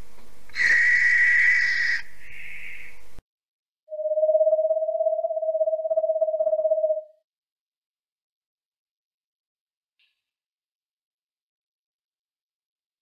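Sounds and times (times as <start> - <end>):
high whistled call: 0.5 - 3.0
owl trilling: 0.5 - 3.0.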